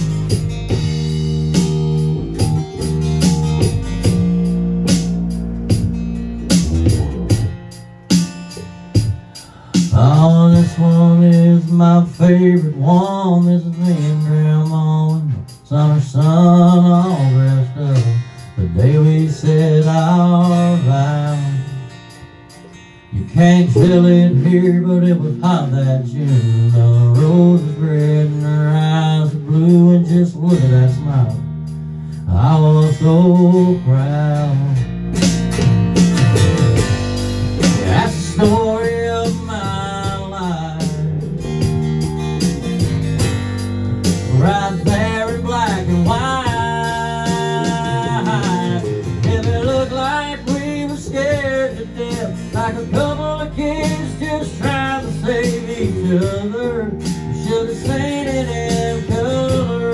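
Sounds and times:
bending melodic line: 0:00.0 - 0:09.4
drum kit: 0:00.0 - 0:59.9
electric bass: 0:00.0 - 0:59.9
strummed acoustic guitar: 0:00.0 - 0:59.9.

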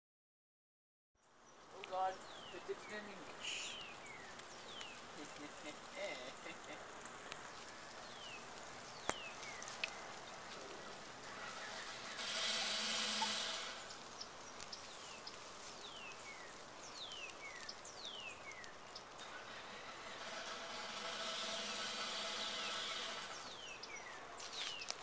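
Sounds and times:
rushing hiss: 0:01.8 - 0:25.0
bird whistled call: 0:11.8 - 0:14.2.

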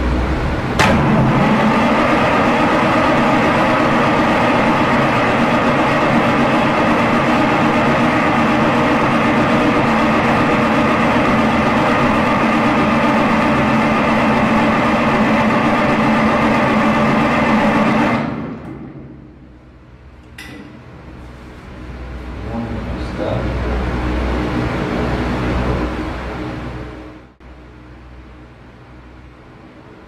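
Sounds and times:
diesel engine cranking on starter: 0:00.4 - 0:20.4.

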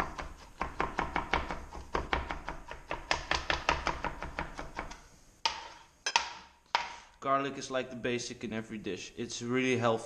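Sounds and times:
knife chopping on cutting board: 0:00.0 - 0:07.0.

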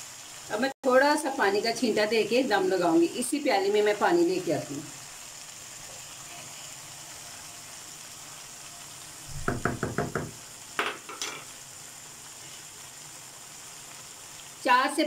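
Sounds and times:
vegetables sizzling in a wok: 0:00.0 - 0:15.0
spatula knocks: 0:09.3 - 0:11.4.

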